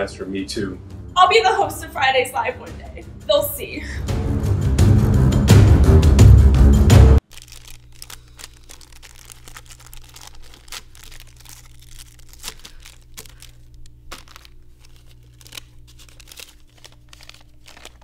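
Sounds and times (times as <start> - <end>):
low steady hum: 7.2 - 18.0
plastic wrappers crinkling and tearing: 7.2 - 18.0.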